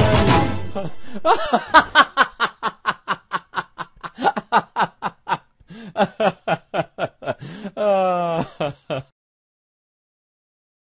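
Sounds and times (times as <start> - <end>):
person laughing: 0.7 - 9.1.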